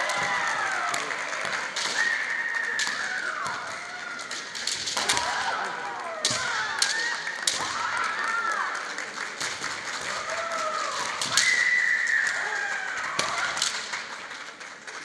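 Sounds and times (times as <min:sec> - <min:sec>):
bamboo swords cracking: 0:04.2 - 0:07.9.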